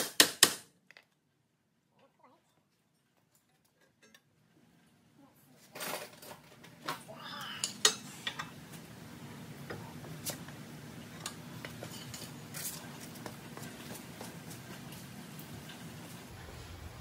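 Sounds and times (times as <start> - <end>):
steady low hum: 7.1 - 17.0.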